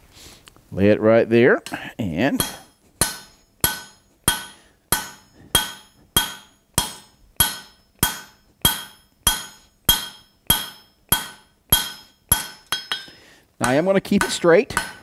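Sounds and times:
hammer striking hot steel on anvil: 2.4 - 15.0.

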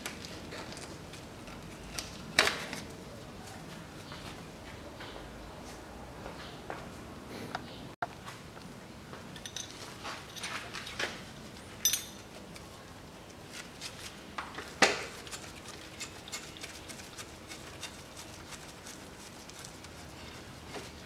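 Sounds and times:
hand tools clinking on metal: 9.4 - 10.9, 11.8 - 12.4.

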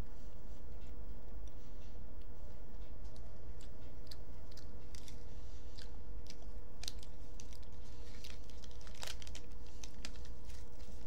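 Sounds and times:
low hum: 0.0 - 11.0
chewing crunchy bar: 3.0 - 10.1.

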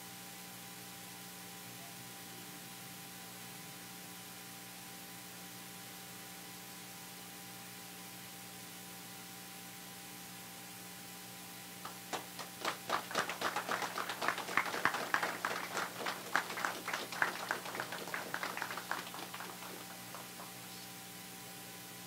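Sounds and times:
steady electrical hum: 0.0 - 22.0
small group applauding: 11.8 - 20.8.

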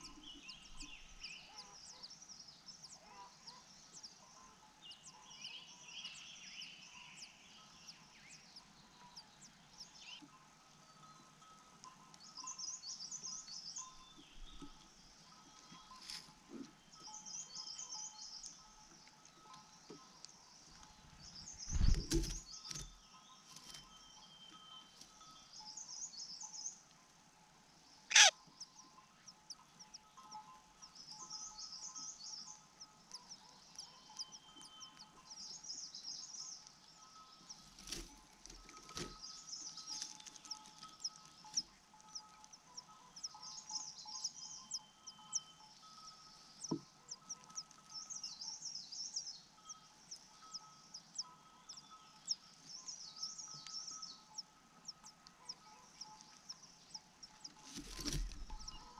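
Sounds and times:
birds chirping: 0.0 - 26.8, 27.9 - 58.9
loud sharp bird call: 28.1 - 28.3.

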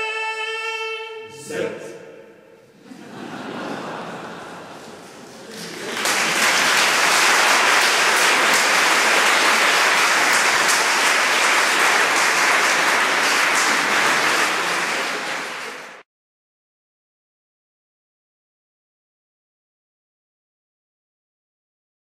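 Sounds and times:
audience applause: 3.3 - 16.0.

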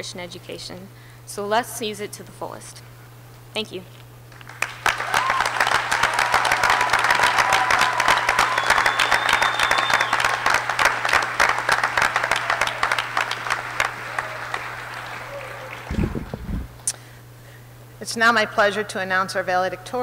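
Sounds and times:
audience applauding: 4.3 - 16.7.

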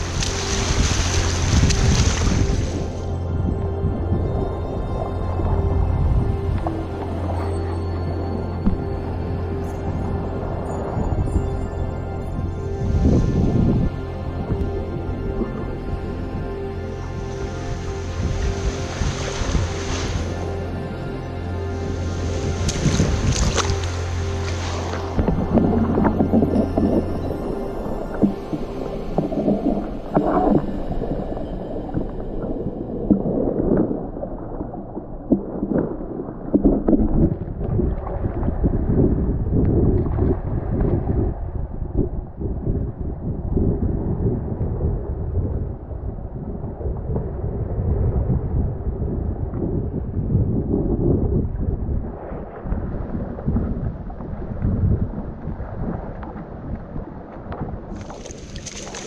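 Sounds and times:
surf: 0.0 - 15.8, 16.4 - 39.2, 52.0 - 59.0
muffled underwater rumbling: 0.0 - 59.0
muffled water sloshing and bubbling: 0.0 - 59.0
wind: 0.0 - 59.0
faint clicks underwater: 35.3 - 38.5, 48.1 - 50.5, 54.2 - 59.0.

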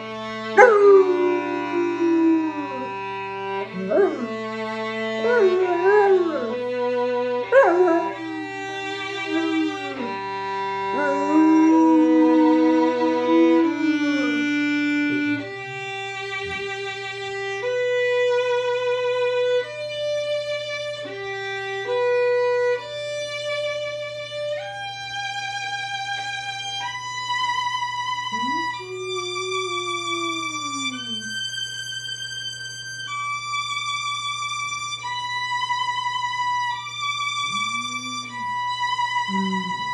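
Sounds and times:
violin playing held notes: 0.0 - 26.0, 28.1 - 39.9
puppy howling: 0.5 - 15.9, 28.3 - 31.6, 37.4 - 39.9.

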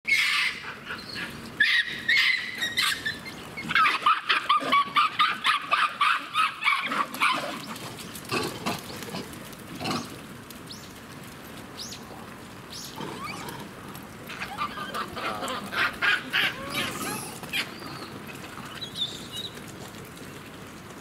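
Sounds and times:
monkeys calling: 14.3 - 18.1.

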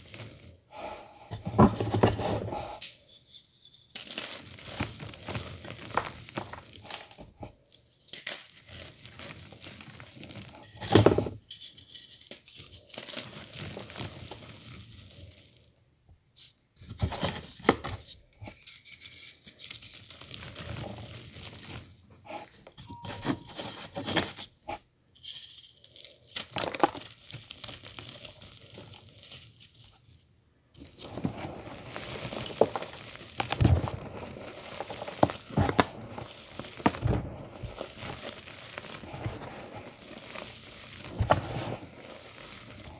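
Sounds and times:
powder pattering down: 4.0 - 7.2, 30.9 - 42.9
chalk crunching by hand: 31.0 - 42.9.

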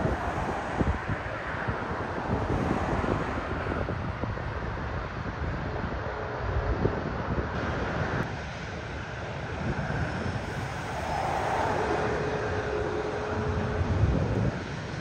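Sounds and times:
airplane engine rumble: 0.0 - 15.0
wind buffeting microphone: 0.0 - 15.0
faint even whine: 7.6 - 15.0.

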